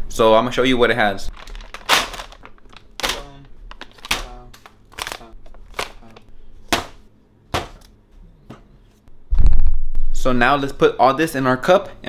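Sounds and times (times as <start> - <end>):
food packages thumping on stove: 1.3 - 6.0.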